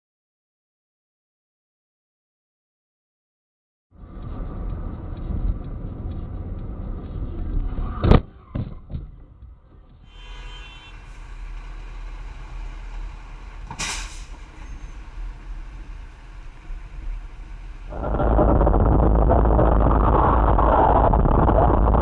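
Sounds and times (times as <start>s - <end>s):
traffic rumble: 3.9s - 22.0s
road noise inside a car: 4.0s - 22.0s
truck air brakes hissing: 10.1s - 15.3s.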